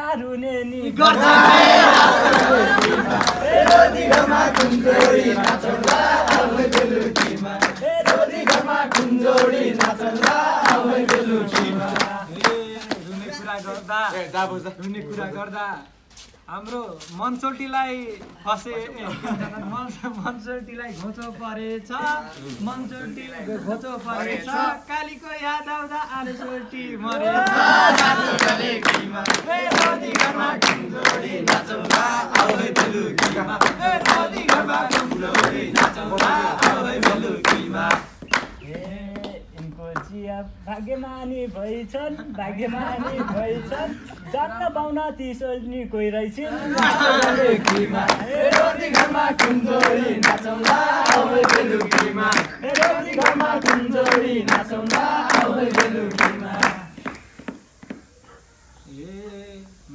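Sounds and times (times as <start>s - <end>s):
men singing folk song: 0.5s - 13.6s, 22.6s - 44.2s, 46.4s - 57.2s
rhythmic hand clapping: 1.0s - 13.4s, 27.1s - 40.2s, 46.6s - 58.1s.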